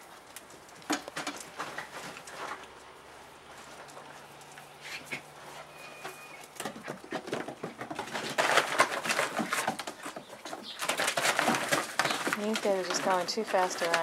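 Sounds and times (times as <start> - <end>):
puppy feet scrabbling on boards: 0.0 - 14.0.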